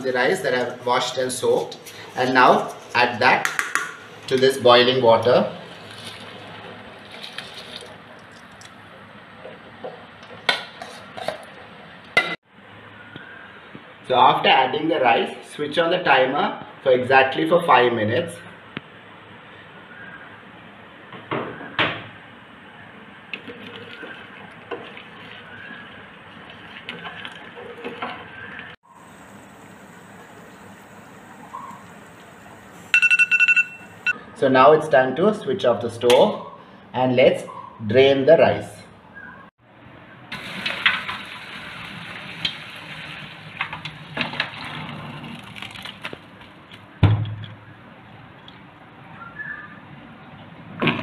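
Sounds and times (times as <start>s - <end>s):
boiling water bubbling: 23.3s - 32.8s, 40.3s - 46.7s
timer alarm beeping: 32.9s - 34.2s.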